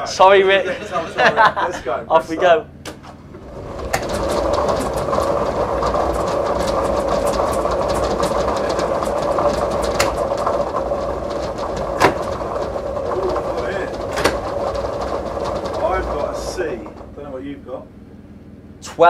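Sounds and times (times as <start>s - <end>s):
motor hum: 2.2s - 18.9s
balls clattering in drum: 3.3s - 17.4s.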